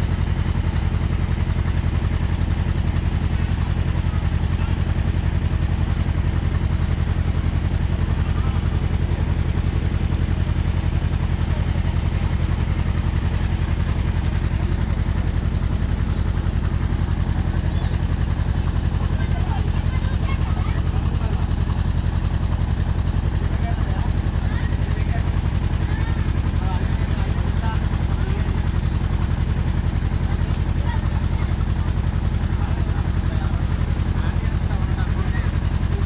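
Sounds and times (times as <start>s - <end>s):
boat engine throbbing: 0.0s - 36.0s.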